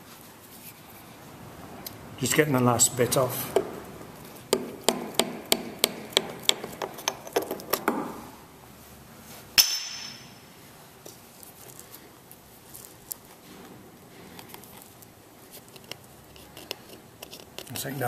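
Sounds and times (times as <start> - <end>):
hammer striking steel: 4.6 - 6.6, 9.6 - 10.4.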